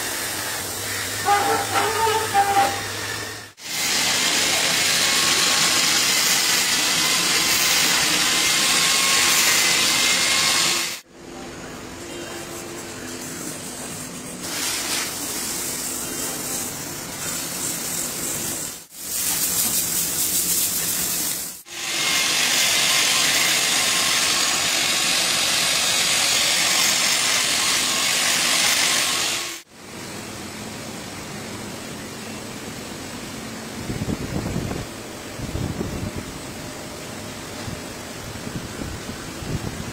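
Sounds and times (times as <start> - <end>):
workshop noise: 0.0 - 29.7
angle grinder grinding rubber: 0.9 - 10.9.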